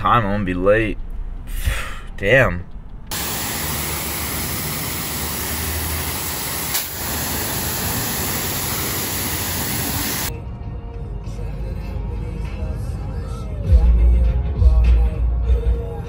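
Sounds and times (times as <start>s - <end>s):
pressure washer click: 3.1s - 10.3s
pressure washer spraying hiss: 3.1s - 10.3s.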